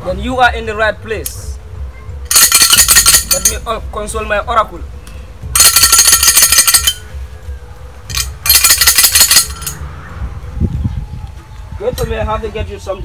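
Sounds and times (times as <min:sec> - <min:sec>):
metallic jingle rattle: 0:02.3 - 0:03.8, 0:05.5 - 0:07.3, 0:08.0 - 0:09.8.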